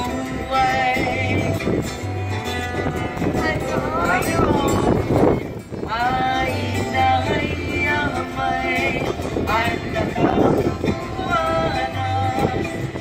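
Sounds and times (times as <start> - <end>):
music: 0.0 - 13.0
voices chanting: 5.9 - 13.0.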